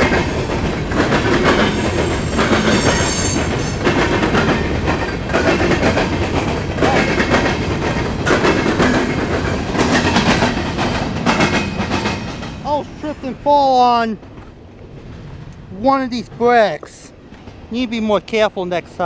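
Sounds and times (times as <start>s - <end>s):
clickety-clack over rail joints: 0.0s - 19.0s
train wheels rumbling on rail: 0.0s - 19.0s
high metallic squeal: 1.9s - 3.5s.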